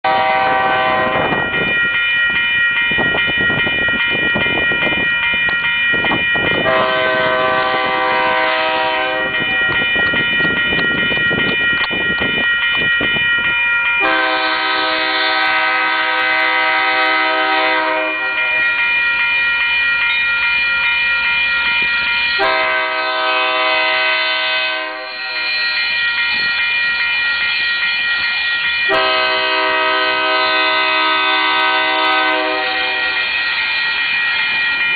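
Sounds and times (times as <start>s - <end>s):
locomotive air horn blasts: 0.0s - 1.3s, 6.6s - 9.4s, 14.0s - 18.7s, 22.4s - 25.6s, 28.9s - 33.3s
crossing warning bell ringing: 0.0s - 34.9s.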